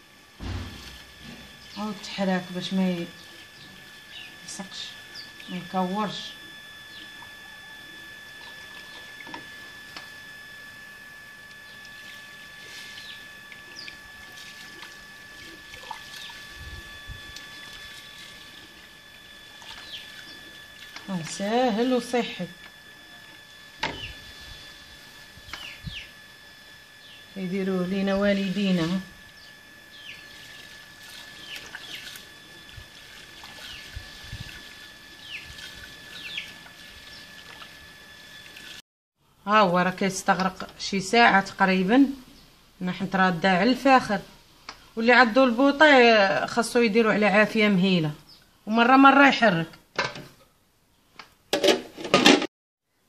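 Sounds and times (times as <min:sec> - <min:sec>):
steady high-pitched whine: 0:00.0 - 0:50.2
thin high tone: 0:00.4 - 0:38.6
small birds chirping: 0:03.0 - 0:05.7, 0:19.7 - 0:20.5, 0:25.4 - 0:26.1, 0:29.3 - 0:30.5, 0:31.3 - 0:32.2, 0:35.2 - 0:37.3.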